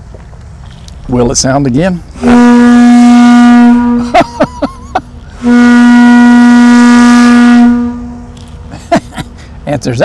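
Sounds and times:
ship's whistle blast: 2.2s - 4.4s, 5.3s - 8.4s.

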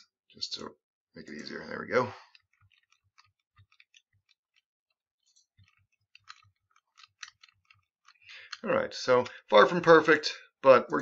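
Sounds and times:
rapid computer clicking: 1.3s - 8.2s.

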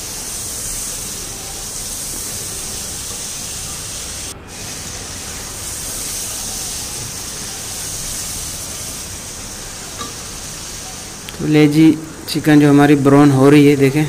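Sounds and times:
chicken sizzling in oil: 0.0s - 12.2s.

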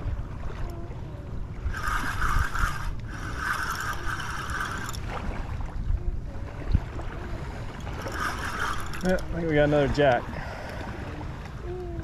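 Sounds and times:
spinning reel gears whirring: 1.6s - 5.1s, 7.8s - 10.8s.

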